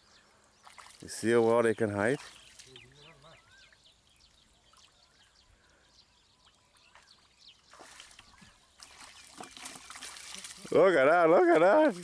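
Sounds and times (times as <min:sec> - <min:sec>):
small birds chirping: 0:00.0 - 0:12.0
muddy water sloshing: 0:00.6 - 0:03.2, 0:06.9 - 0:12.0.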